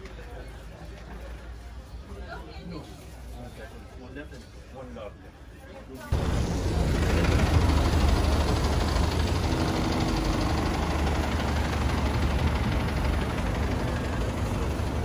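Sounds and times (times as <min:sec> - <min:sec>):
bus engine droning: 0:06.1 - 0:15.0.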